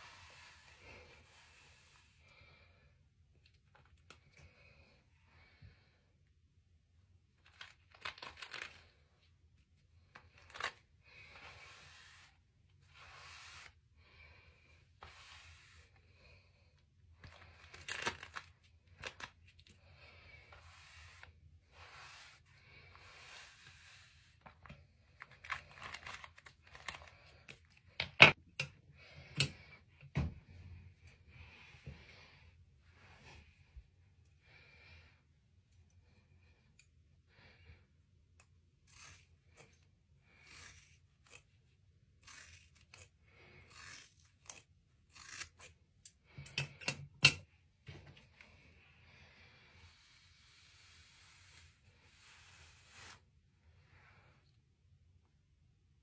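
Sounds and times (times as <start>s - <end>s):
hairbrush swishing through hair: 0.0s - 2.3s, 11.2s - 14.0s, 14.6s - 16.1s, 20.2s - 24.9s, 49.6s - 53.4s.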